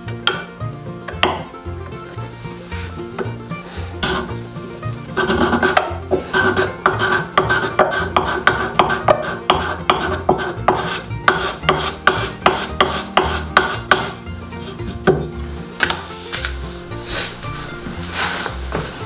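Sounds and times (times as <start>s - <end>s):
wood plane rasping: 0.0s - 19.0s.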